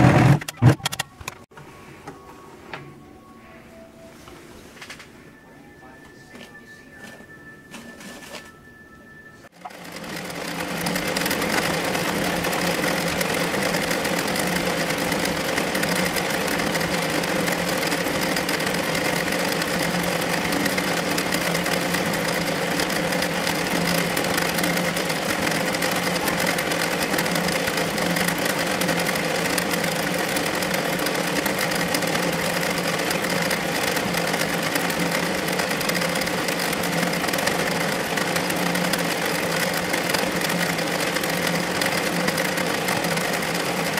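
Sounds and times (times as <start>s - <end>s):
embroidery machine stitching: 9.6s - 43.9s.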